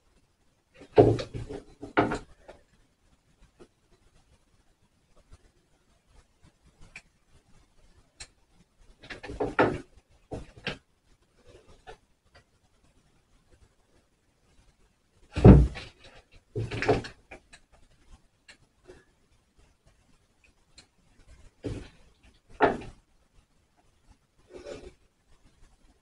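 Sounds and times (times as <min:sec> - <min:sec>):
loud thud: 0:15.4 - 0:15.9.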